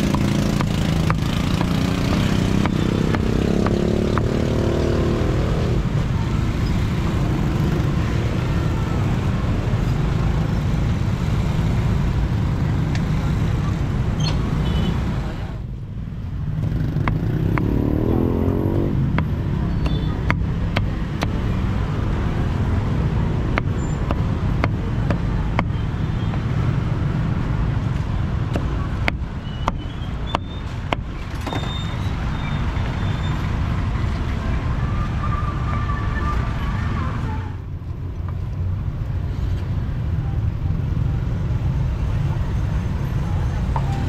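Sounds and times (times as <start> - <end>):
street traffic rumble: 0.0 - 44.0.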